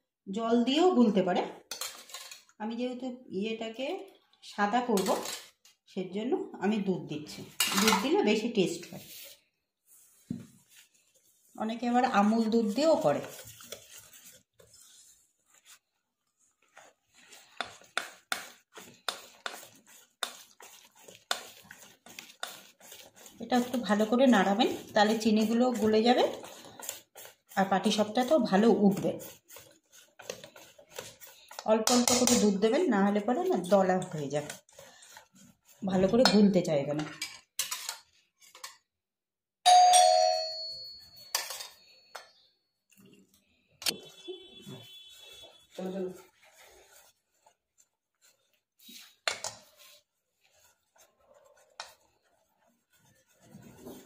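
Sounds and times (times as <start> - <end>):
whisk scraping a metal bowl: 1.6 - 2.5, 4.9 - 5.6, 7.5 - 38.7, 41.0 - 43.1, 43.9 - 54.0.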